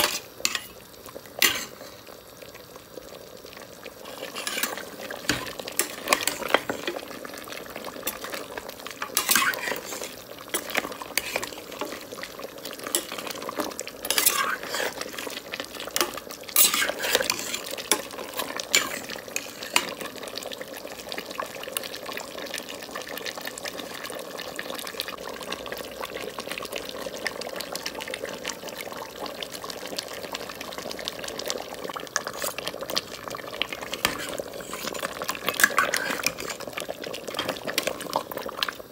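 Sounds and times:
metal spoon scraping a pot: 0.0 - 0.8, 1.4 - 1.9, 4.0 - 7.0, 9.0 - 12.0, 12.9 - 13.4, 14.0 - 15.4, 16.0 - 20.0, 32.2 - 32.7, 33.9 - 36.7
meat sizzling: 0.0 - 38.9.

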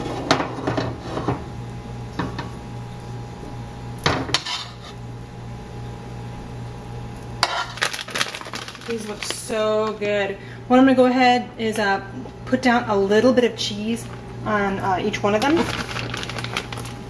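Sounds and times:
steady low hum: 0.0 - 17.0
metal spoon scraping frying pan: 4.4 - 5.0.

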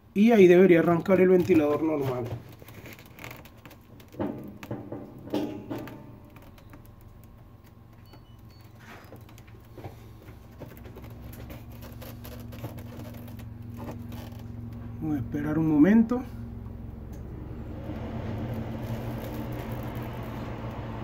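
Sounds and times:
refrigerator humming: 0.0 - 21.0
handling knocks: 0.8 - 15.0.

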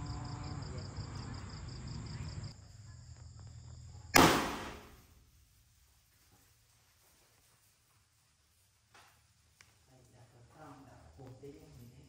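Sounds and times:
crickets chirping: 0.0 - 12.0
confetti firework pop: 4.2 - 5.0.

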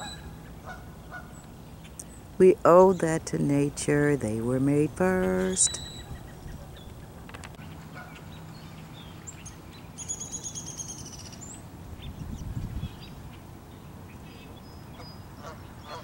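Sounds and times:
songbird trilling: 5.2 - 16.0.

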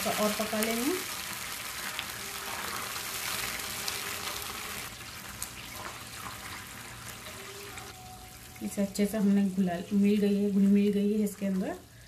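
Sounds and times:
syrup bubbling and sizzling: 0.0 - 8.5
spatula stirring in pan: 1.6 - 4.9.

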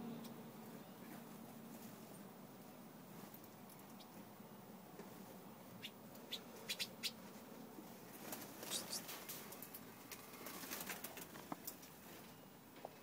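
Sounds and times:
finches chirping: 5.8 - 7.2, 8.6 - 9.1.

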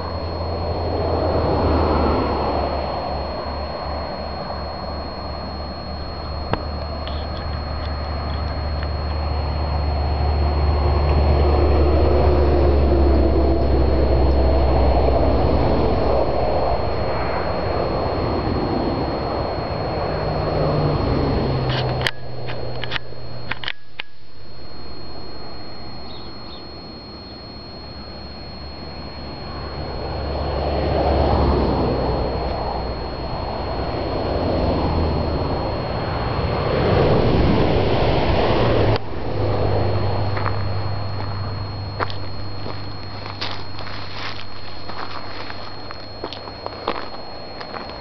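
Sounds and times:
faint high whine: 0.0 - 48.0
low hum: 0.0 - 48.0
wind rumble on microphone: 33.4 - 42.8.

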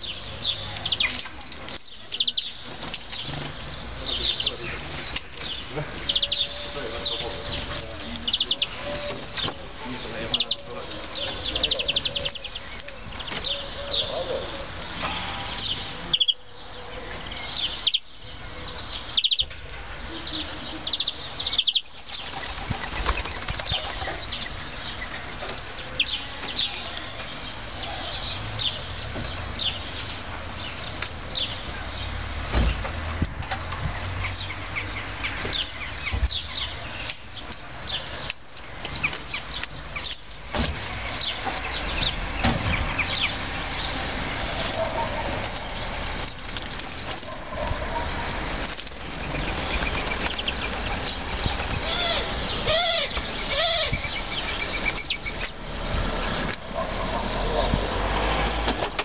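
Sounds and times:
small songbirds chirping: 0.0 - 58.7
bird wing flutters: 22.1 - 24.2, 48.5 - 51.9.

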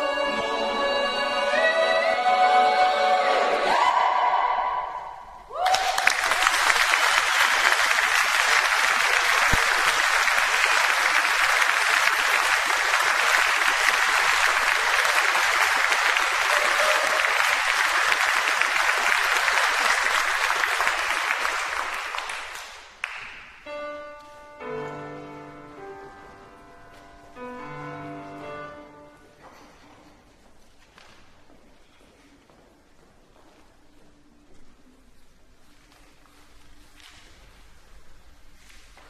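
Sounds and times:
choir singing a cappella chord: 0.0 - 5.2
audience applauding: 5.5 - 23.6
piano notes: 23.6 - 29.8.

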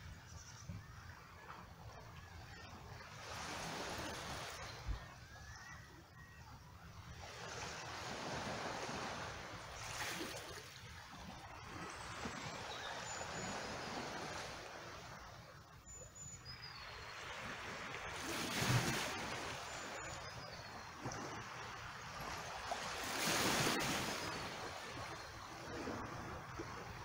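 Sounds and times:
small waves washing in: 7.0 - 15.6, 16.9 - 27.0
rock pool sloshing and trickling: 9.8 - 12.4, 17.8 - 20.4.

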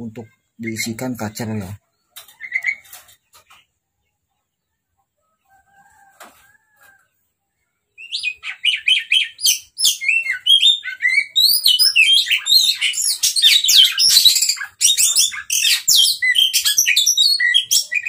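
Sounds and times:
bird singing whistles and chirps: 8.0 - 18.0.

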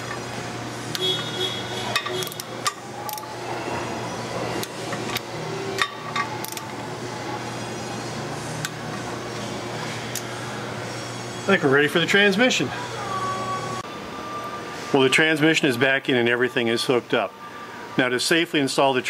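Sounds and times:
torque wrench clicks: 6.4 - 6.7.

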